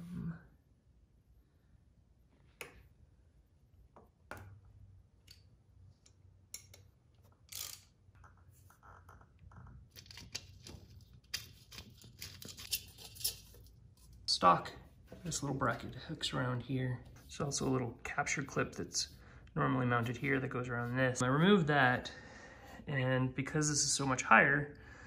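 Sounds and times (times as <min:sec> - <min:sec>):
clicking and rubbing of parts: 0:05.2 - 0:14.3.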